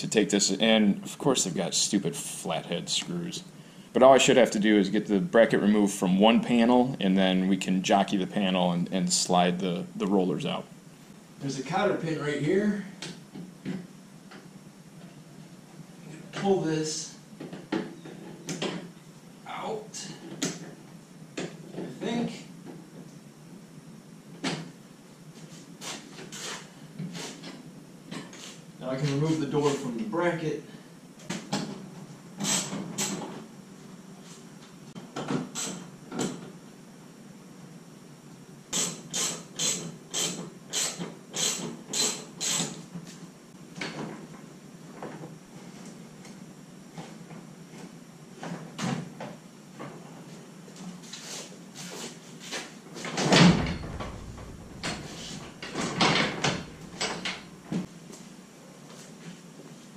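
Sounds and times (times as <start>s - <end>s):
metal garage door rattling: 53.2s - 57.7s
heavy thump: 53.3s - 57.8s.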